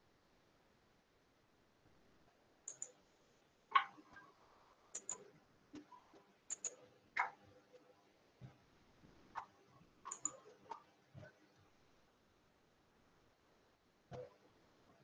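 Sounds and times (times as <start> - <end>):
computer mouse clicking: 2.7 - 3.0, 4.9 - 7.4, 9.4 - 11.3.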